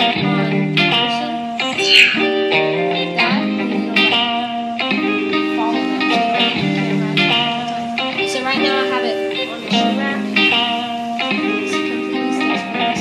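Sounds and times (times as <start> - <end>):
guitar background music: 0.0 - 13.0.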